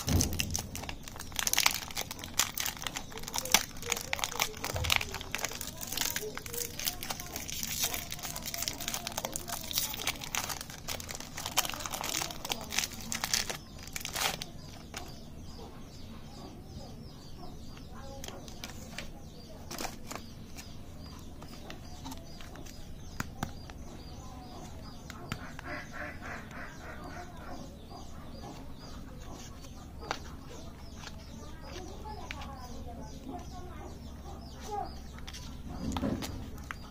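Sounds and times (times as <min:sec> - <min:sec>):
foil wrapper crinkling: 0:00.0 - 0:15.2, 0:18.2 - 0:20.6
faint bird calls: 0:00.0 - 0:36.9.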